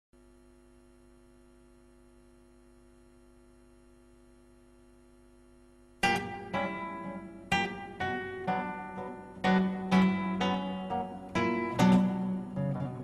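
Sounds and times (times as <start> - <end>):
faint steady hum: 0.2 - 13.0
classical guitar chords: 6.0 - 13.0.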